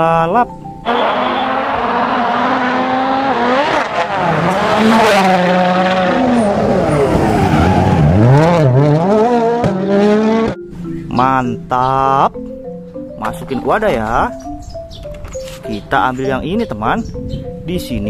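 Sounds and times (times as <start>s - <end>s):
rally car engines at full throttle: 0.8s - 10.6s.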